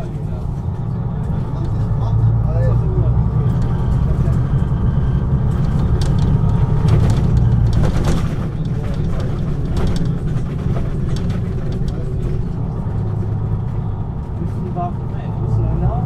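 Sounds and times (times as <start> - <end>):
bus diesel engine droning: 0.0 - 16.0
light clicks and rattles: 5.5 - 13.0.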